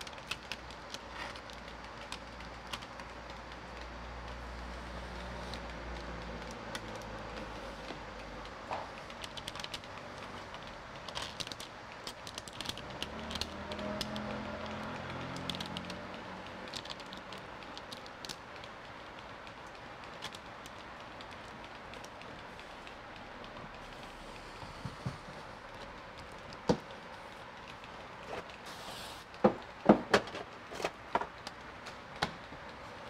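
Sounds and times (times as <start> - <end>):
window film crackling: 0.0 - 24.1
room noise: 0.0 - 33.0.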